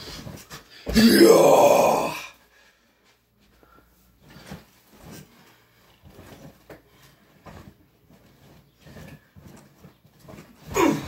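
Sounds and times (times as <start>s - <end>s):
thumps and rustling on mattress: 0.0s - 1.0s.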